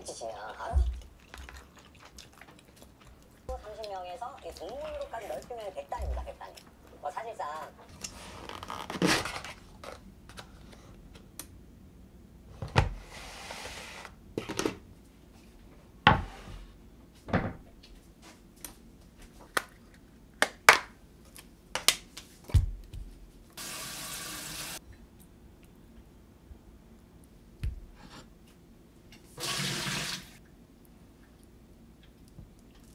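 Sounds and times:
tap running water: 0:23.6 - 0:24.8, 0:29.4 - 0:30.4.

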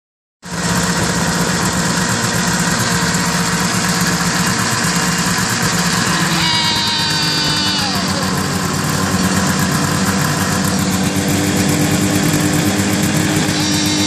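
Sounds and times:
snowmobile engine running: 0:00.5 - 0:14.0
high multi-tone whine: 0:13.4 - 0:14.0.

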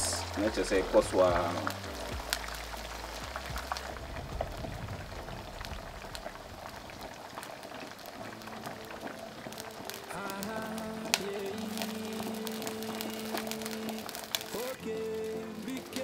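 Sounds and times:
fish frying in hot oil: 0:00.0 - 0:16.0.

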